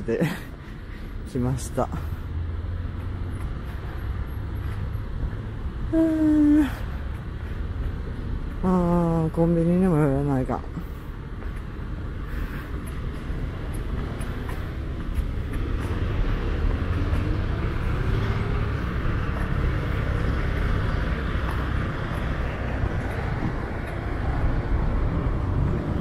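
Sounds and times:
passing cars and trucks: 0:00.0 - 0:26.0
engine speeding up: 0:14.3 - 0:26.0.

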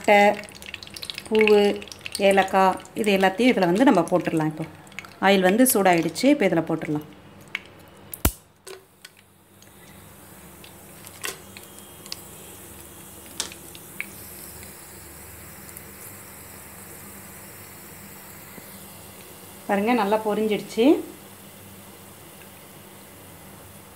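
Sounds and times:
oil popping: 0:00.0 - 0:06.2
spices sizzling in hot oil: 0:00.0 - 0:23.9.

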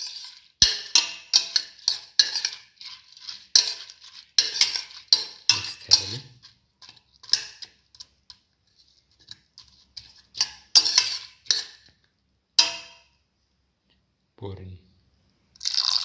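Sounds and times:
metal spoon scraping a pot: 0:00.0 - 0:11.9, 0:12.6 - 0:13.1.

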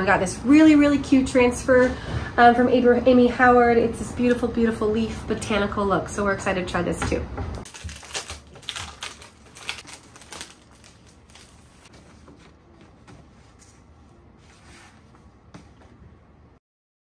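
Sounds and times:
transfer sheet rustling and crinkling: 0:07.6 - 0:15.2.

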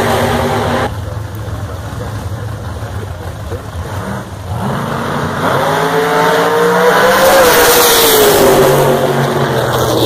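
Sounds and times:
racing car engine revving: 0:03.0 - 0:10.0.

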